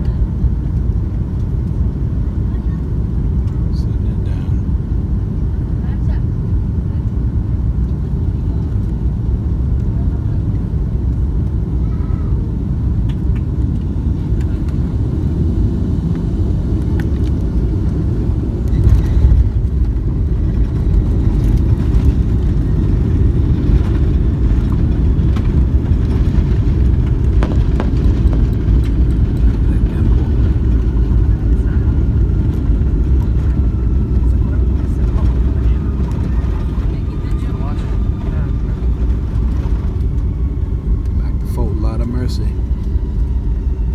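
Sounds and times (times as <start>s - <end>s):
airliner engine and airflow rumble: 0.0s - 43.9s.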